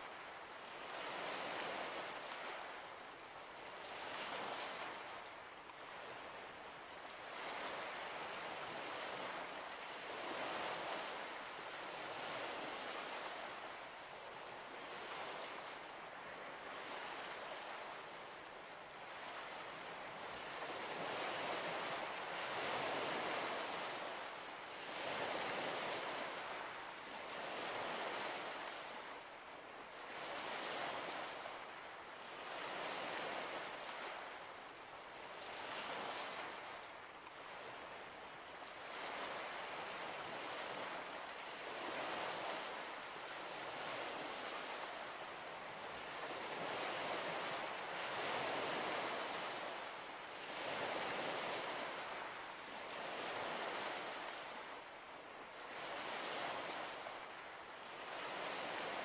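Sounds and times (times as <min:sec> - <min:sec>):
waves washing onto shore: 0:00.0 - 0:59.0.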